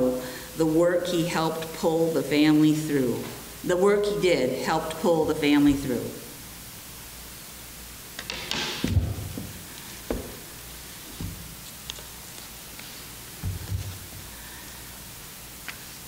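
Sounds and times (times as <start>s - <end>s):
soft knocks on wooden lectern: 8.3s - 10.4s.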